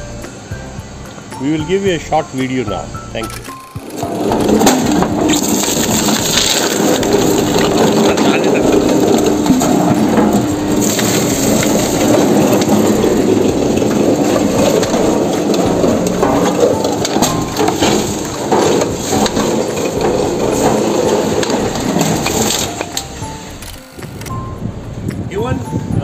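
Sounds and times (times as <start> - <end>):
machine grinding coconut husk: 1.1 - 24.3.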